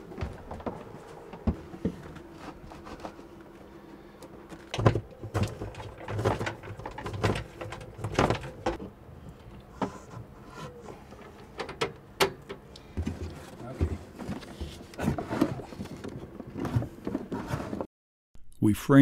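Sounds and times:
knocks bumps and scrapes: 0:04.3 - 0:08.9, 0:13.0 - 0:17.9.

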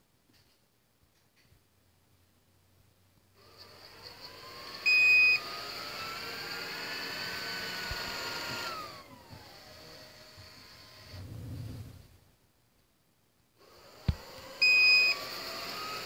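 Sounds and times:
robot vacuum motor whine: 0:03.4 - 0:12.0, 0:13.6 - 0:16.0.

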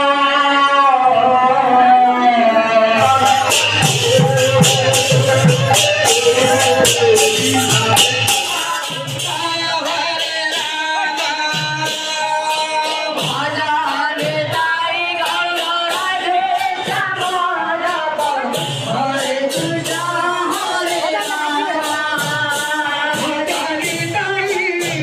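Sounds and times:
voices chanting together: 0:02.8 - 0:14.3
low drum beat: 0:03.0 - 0:09.6
ringing hand cymbals: 0:03.0 - 0:13.7.

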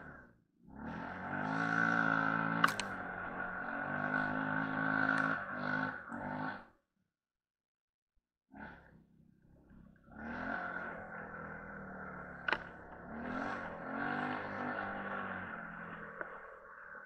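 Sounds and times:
quad bike engine revving: 0:00.0 - 0:06.8, 0:08.5 - 0:17.0
sharp click: 0:02.6 - 0:03.0.

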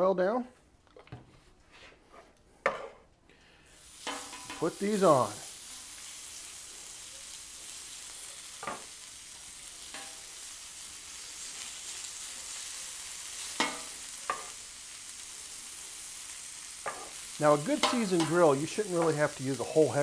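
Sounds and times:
meat sizzling on a griddle: 0:03.6 - 0:20.0
metal tongs clinking: 0:09.9 - 0:10.2, 0:13.6 - 0:14.6, 0:17.8 - 0:19.1.

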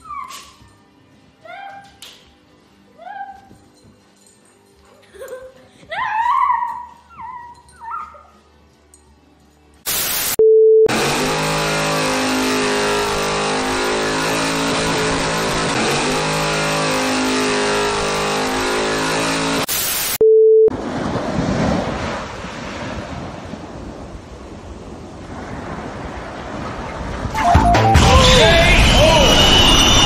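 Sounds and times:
burst of static: 0:09.9 - 0:10.4, 0:19.6 - 0:20.2
steady beep: 0:20.0 - 0:20.7, 0:27.4 - 0:30.0.

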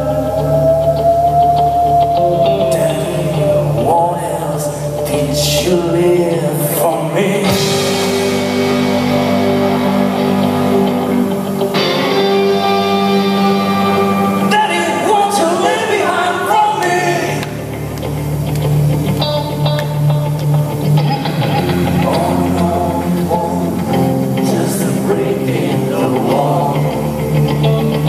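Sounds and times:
bass guitar: 0:00.0 - 0:28.0
electric guitar: 0:00.0 - 0:28.0
man singing: 0:00.1 - 0:08.8, 0:14.1 - 0:17.6, 0:21.8 - 0:27.5.

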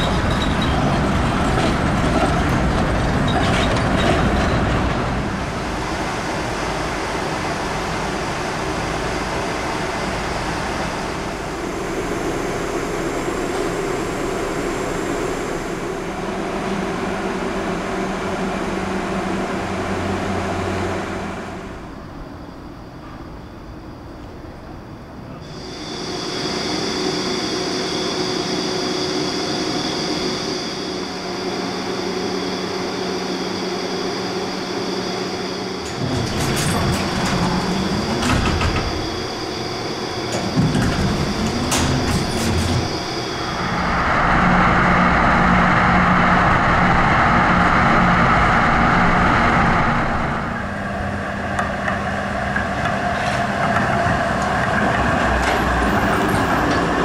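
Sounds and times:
tram electrical hum: 0:00.0 - 0:57.0
tram running by on track: 0:00.0 - 0:57.0
knocks and clatter: 0:35.8 - 0:39.2, 0:40.3 - 0:43.2.

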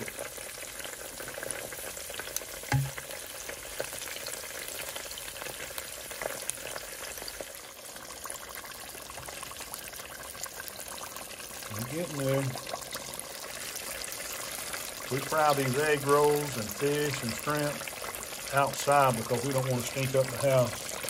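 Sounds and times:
food deep-frying in oil: 0:00.0 - 0:21.0
short low knock: 0:02.7 - 0:03.0.

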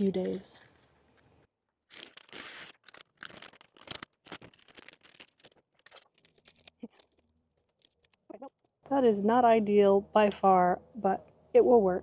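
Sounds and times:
contact paper rustling: 0:01.9 - 0:08.2.

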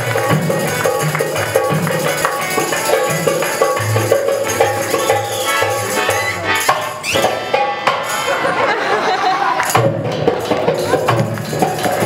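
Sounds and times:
hand drums beating: 0:00.0 - 0:08.6, 0:09.6 - 0:12.0
harmonium notes: 0:00.0 - 0:09.6
jingling percussion: 0:00.0 - 0:12.0.

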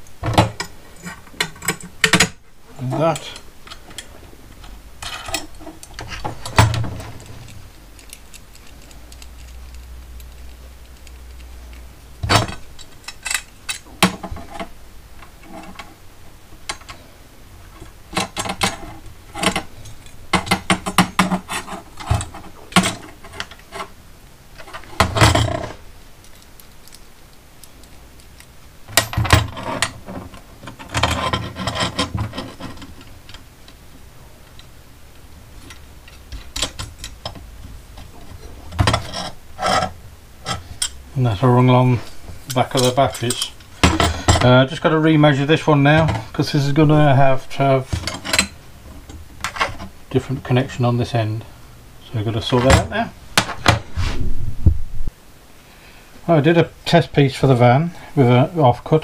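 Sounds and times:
metal parts clinking and knocking: 0:00.2 - 0:02.4, 0:03.1 - 0:11.5, 0:12.2 - 0:14.7, 0:27.6 - 0:33.4, 0:35.6 - 0:37.4, 0:42.4 - 0:44.6, 0:47.9 - 0:49.9.

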